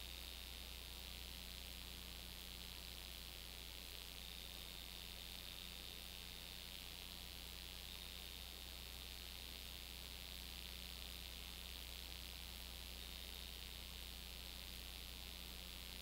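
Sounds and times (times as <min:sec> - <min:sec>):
low electrical hum: 0:00.0 - 0:16.0
tape hiss: 0:00.0 - 0:16.0.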